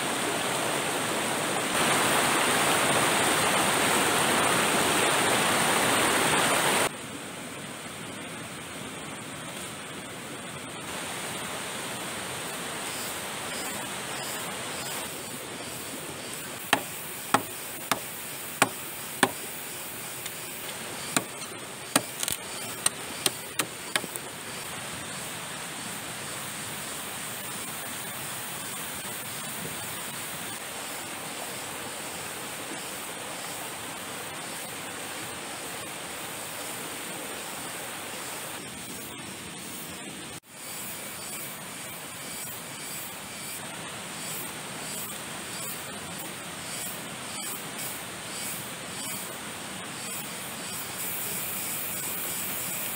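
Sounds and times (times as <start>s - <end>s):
river water rushing: 0.0s - 38.8s
sharp knocks: 16.7s - 19.4s, 21.1s - 24.2s.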